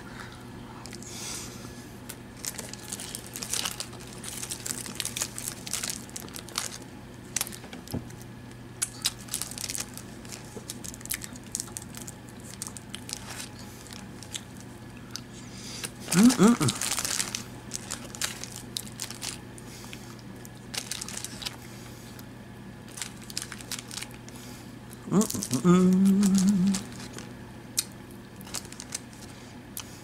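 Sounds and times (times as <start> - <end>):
steady low hum: 0.0 - 30.0
plastic wrapper crinkling: 2.4 - 7.9, 8.8 - 14.7, 16.1 - 19.6, 20.6 - 21.6, 22.8 - 24.3, 25.1 - 27.3, 28.4 - 29.3.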